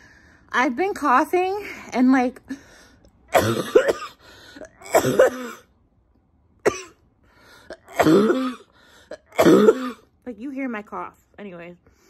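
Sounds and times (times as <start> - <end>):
woman coughing: 3.3 - 5.7, 6.6 - 7.0, 7.7 - 10.1.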